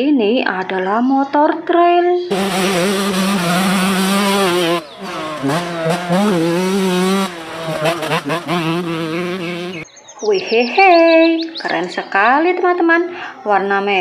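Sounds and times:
dirt bike engine revving: 0:02.3 - 0:09.8.

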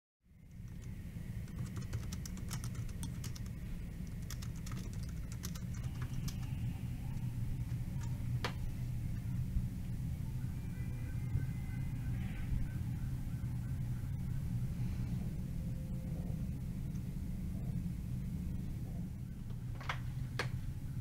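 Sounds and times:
steady low rumble: 0:00.3 - 0:21.0
light irregular clicking: 0:00.4 - 0:09.3.

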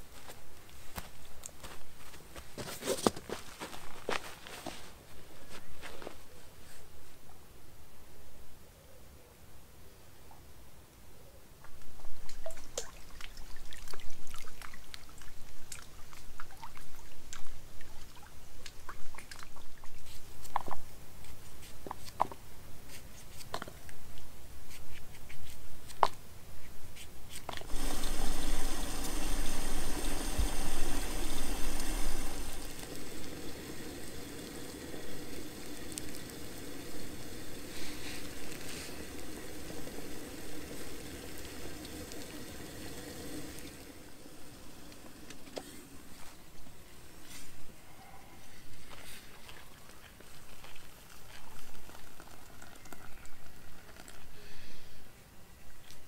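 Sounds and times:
camping stove hissing: 0:27.6 - 0:47.3.

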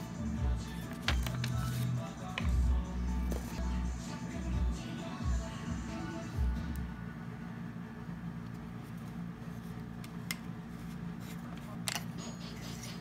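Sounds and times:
faint pop music: 0:00.0 - 0:08.8, 0:10.8 - 0:13.0
hard plastic handling: 0:00.8 - 0:02.6.

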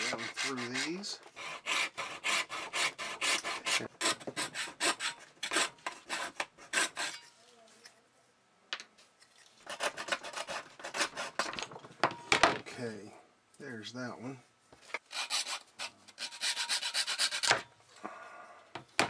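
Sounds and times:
coping saw cutting wood: 0:00.0 - 0:07.2.

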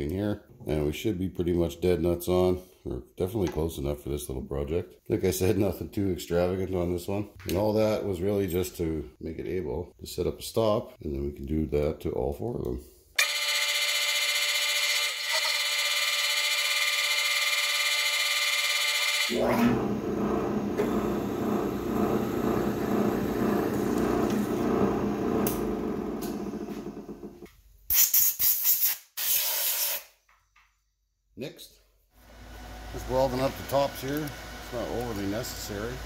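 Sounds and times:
milling cutter cutting steel: 0:13.2 - 0:27.0
milling spindle whining: 0:13.2 - 0:27.4, 0:32.3 - 0:36.0.

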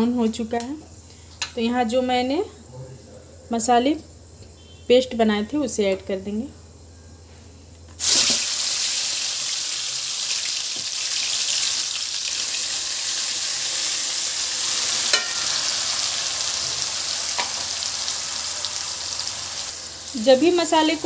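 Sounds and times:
paste sizzling in hot oil: 0:08.0 - 0:21.0.

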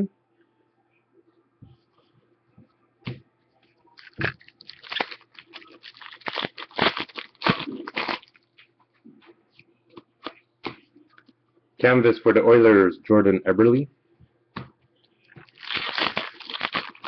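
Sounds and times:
foil wrapper crackling: 0:04.0 - 0:08.4, 0:15.4 - 0:17.0.

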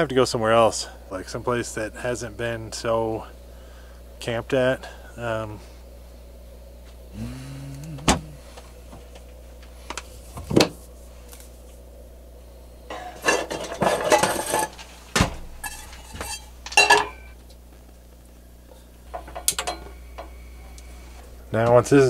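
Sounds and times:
saucepan and dishes rattling: 0:15.6 - 0:17.3.

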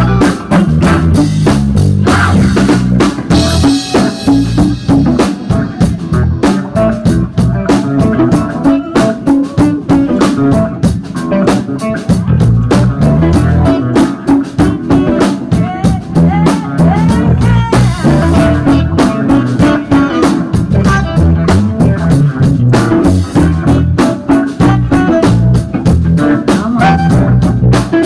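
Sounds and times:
bass line: 0:00.0 - 0:28.0
busy drumming: 0:00.0 - 0:28.0
electric guitar: 0:00.0 - 0:28.0.

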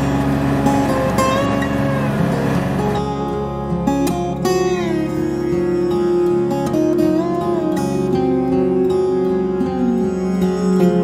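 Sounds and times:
plucked string music: 0:00.0 - 0:11.0.

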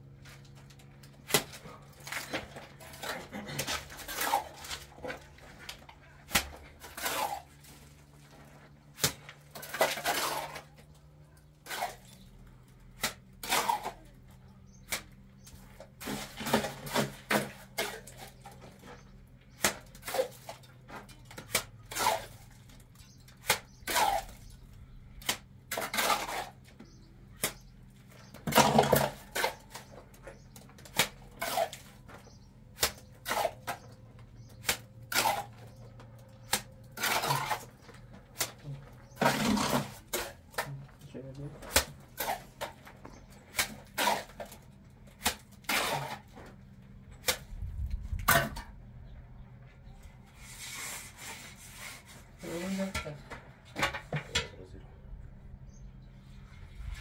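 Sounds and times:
low steady hum: 0:00.0 - 0:57.0
hand tools scraping cement: 0:01.3 - 0:10.8, 0:11.5 - 0:12.3, 0:13.0 - 0:14.2, 0:14.9 - 0:22.9, 0:23.5 - 0:24.6, 0:25.2 - 0:44.6, 0:45.2 - 0:46.6, 0:50.3 - 0:53.2.

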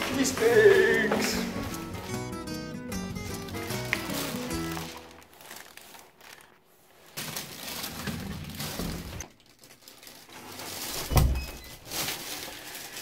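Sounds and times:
door handling and rustling: 0:07.2 - 0:09.4, 0:10.4 - 0:12.2.

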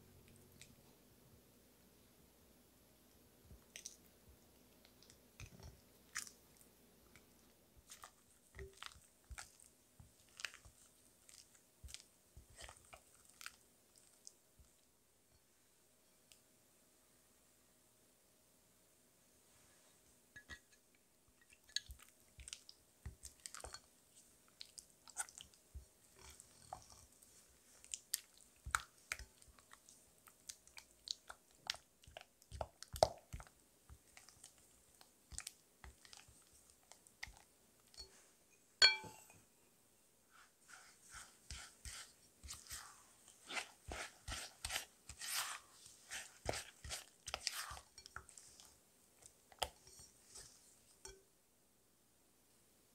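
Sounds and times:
spatula smacking and scraping: 0:07.2 - 0:14.3, 0:21.4 - 0:38.2, 0:40.7 - 0:51.2
spatula tapping glass bowl: 0:20.4 - 0:20.8, 0:38.8 - 0:39.4
sharp clink: 0:38.8 - 0:39.3.

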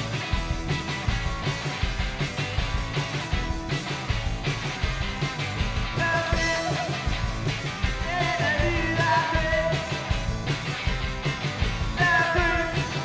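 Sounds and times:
rock band playing: 0:00.0 - 0:13.0
man singing: 0:06.0 - 0:07.1, 0:08.0 - 0:10.2, 0:11.9 - 0:13.0.

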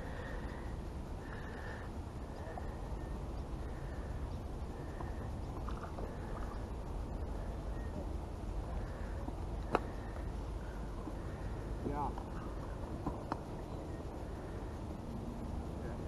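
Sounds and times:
steady low rumble: 0:00.0 - 0:16.0
faint chirps: 0:06.0 - 0:12.7.

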